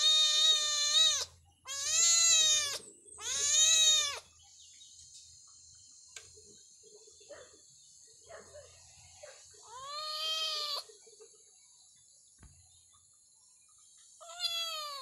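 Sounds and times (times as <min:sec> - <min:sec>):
kitten meowing: 0:00.0 - 0:04.3, 0:09.7 - 0:10.9, 0:14.2 - 0:15.0.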